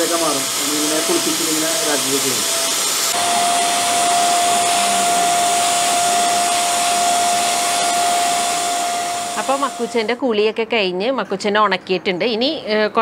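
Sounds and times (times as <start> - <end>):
electric pump blowing air: 0.0 - 10.2.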